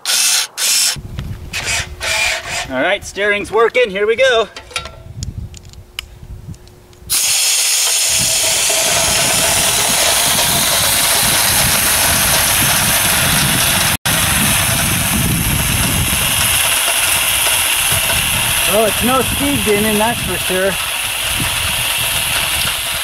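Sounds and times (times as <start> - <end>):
compressed air hissing: 7.1 - 23.0.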